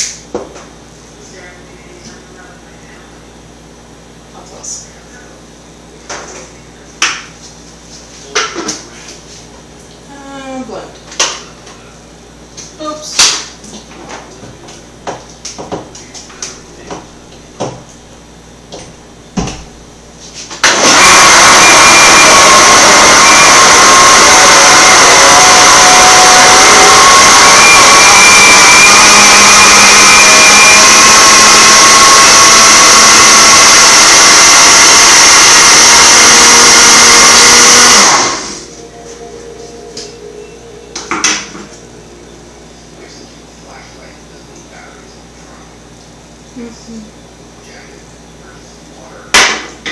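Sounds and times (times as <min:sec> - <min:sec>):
blender motor whirring: 0:20.6 - 0:38.8.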